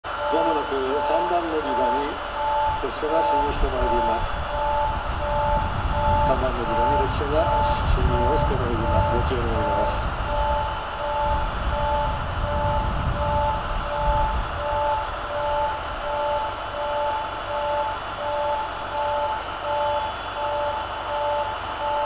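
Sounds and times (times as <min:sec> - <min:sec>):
level crossing alarm ringing: 0:00.0 - 0:22.0
low rumble: 0:02.2 - 0:19.5.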